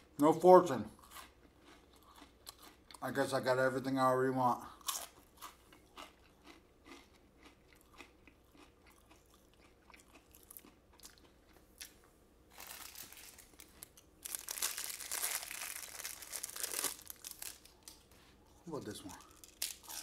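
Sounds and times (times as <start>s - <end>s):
cookie crunching while chewed: 0.9s - 3.1s, 4.7s - 20.0s
cellophane wrapper crinkling: 12.5s - 18.1s, 18.7s - 20.0s.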